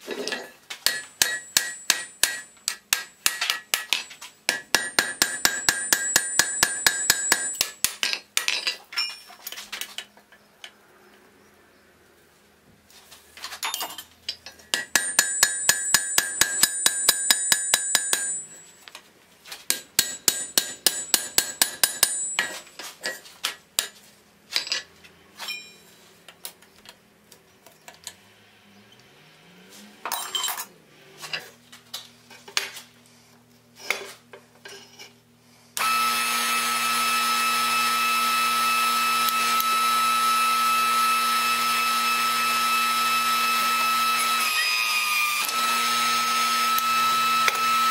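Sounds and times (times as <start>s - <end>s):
hammer ringing on anvil: 0.8s - 8.2s, 14.7s - 18.8s, 19.7s - 22.6s.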